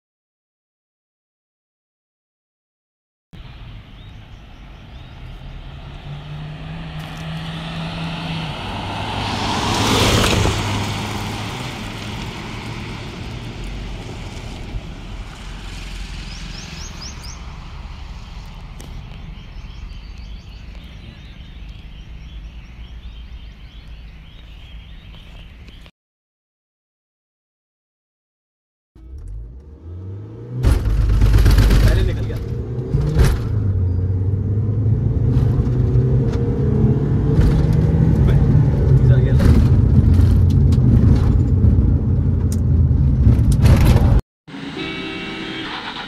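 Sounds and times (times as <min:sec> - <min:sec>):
background traffic noise: 0:03.4 - 0:25.9, 0:29.4 - 0:46.0
vehicle passing at speed: 0:04.4 - 0:20.6.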